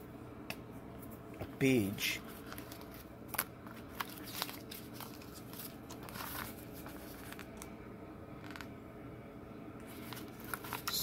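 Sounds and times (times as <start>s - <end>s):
paper pages rustling: 2.2s - 7.7s, 9.8s - 11.0s.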